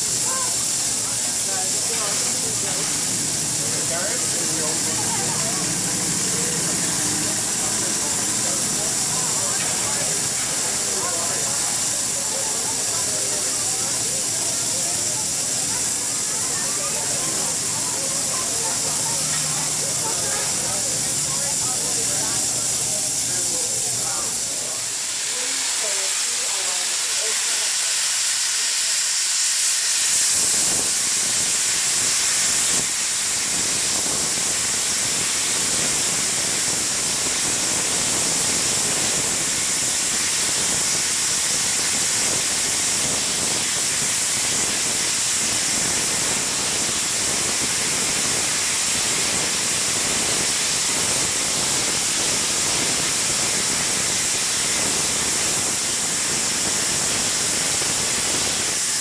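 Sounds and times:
steam locomotive hissing steam: 0:00.0 - 0:59.0.

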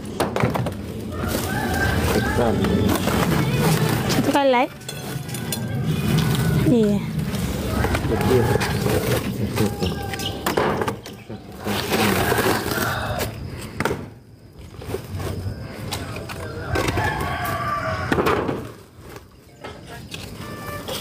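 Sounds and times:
rooster crowing: 0:01.1 - 0:03.2, 0:07.4 - 0:10.4, 0:12.0 - 0:13.5, 0:16.4 - 0:18.8.

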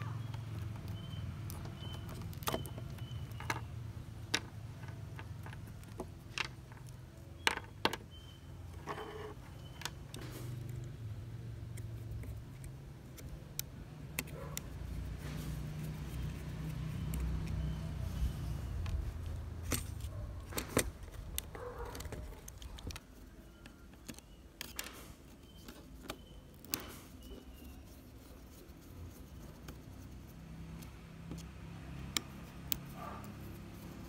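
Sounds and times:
screwdriver clicking and scraping: 0:15.9 - 0:27.8.

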